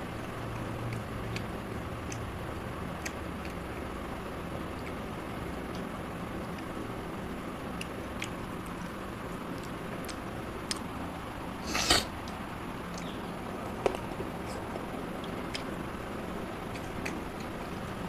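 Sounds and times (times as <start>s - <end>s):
steady background noise: 0.0s - 18.0s
person chewing: 0.4s - 2.3s, 2.9s - 3.9s, 7.7s - 15.8s, 16.6s - 17.9s
mouth clicks and smacks: 0.5s - 2.3s, 7.7s - 11.0s, 11.6s - 15.8s.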